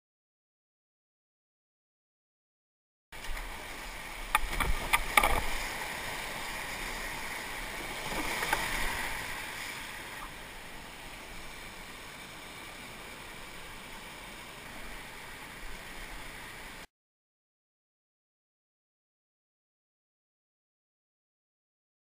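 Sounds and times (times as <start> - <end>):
whitewater rushing: 3.2 - 16.9.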